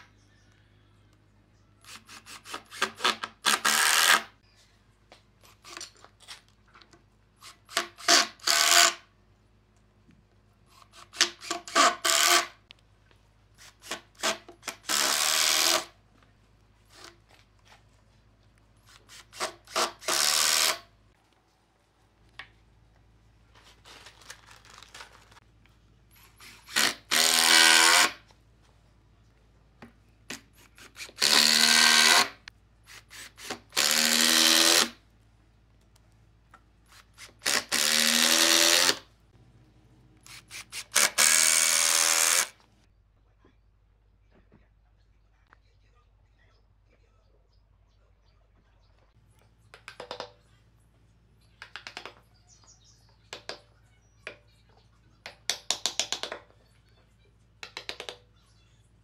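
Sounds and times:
impact driver driving screws: 0:11.0 - 0:12.5, 0:18.9 - 0:20.8, 0:26.4 - 0:28.2, 0:30.7 - 0:35.0, 0:37.0 - 0:39.0, 0:40.3 - 0:42.5.

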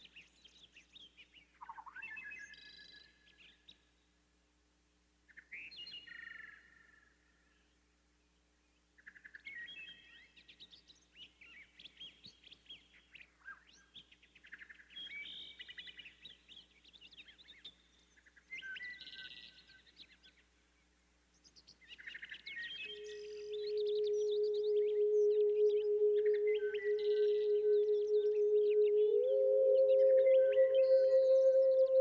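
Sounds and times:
songbirds chirping: 0:00.0 - 0:04.4, 0:05.2 - 0:32.0
steady hum: 0:23.0 - 0:32.0.

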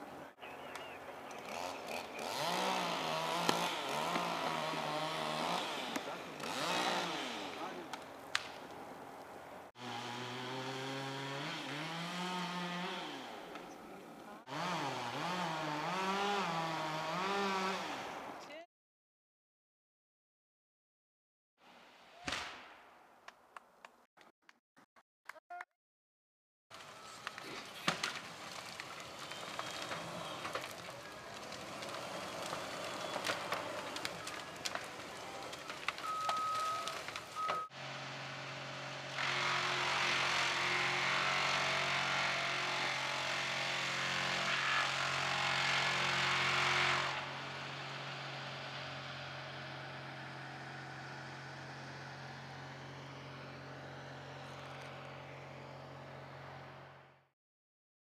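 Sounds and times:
wood chipper engine humming: 0:00.1 - 0:09.0, 0:09.8 - 0:18.0, 0:26.7 - 0:57.2
rushing sound of wood chipping: 0:01.4 - 0:08.7, 0:26.8 - 0:37.4, 0:39.1 - 0:47.3
sharp cracks and clicks: 0:07.9 - 0:08.8, 0:27.2 - 0:37.6
skidder rumbling: 0:26.8 - 0:56.9.

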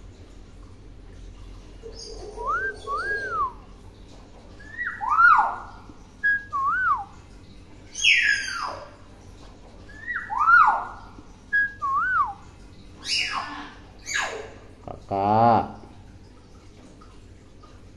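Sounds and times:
myna whistling: 0:02.1 - 0:03.6, 0:11.5 - 0:12.4.

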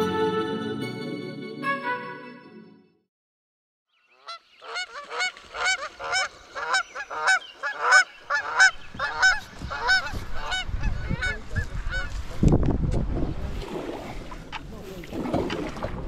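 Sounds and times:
geese honking: 0:04.2 - 0:12.1.

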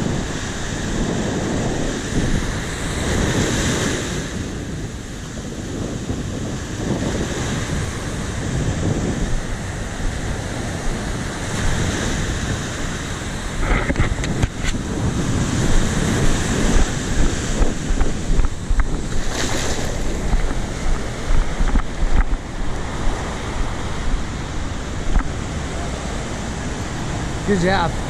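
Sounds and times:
surf washing on beach: 0:00.0 - 0:28.0
wind buffeting microphone: 0:00.0 - 0:28.0.

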